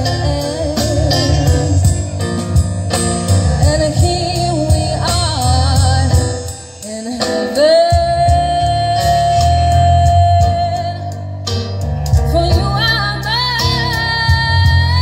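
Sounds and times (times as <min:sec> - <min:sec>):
woman singing: 0:00.0 - 0:02.1, 0:03.6 - 0:11.4, 0:12.3 - 0:15.0
live band playing: 0:00.0 - 0:15.0.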